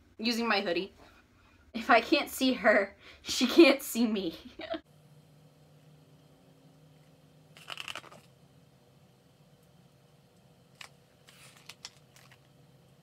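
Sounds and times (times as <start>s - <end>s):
paper pages rustling: 7.6s - 8.3s, 10.8s - 12.5s.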